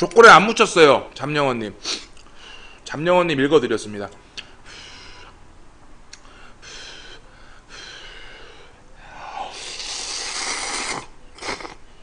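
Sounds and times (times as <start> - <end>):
man slurping noodles: 9.4 - 11.8.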